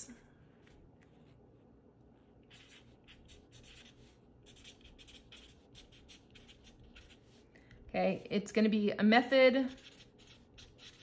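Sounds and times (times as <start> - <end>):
marker writing on paper: 2.4 - 7.4, 9.6 - 11.0.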